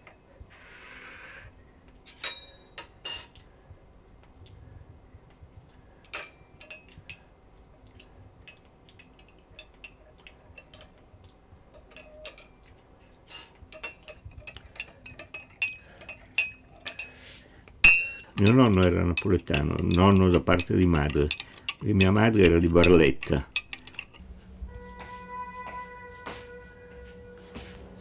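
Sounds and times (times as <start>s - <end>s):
cutlery clinking against china: 2.1s - 3.4s, 11.8s - 17.2s.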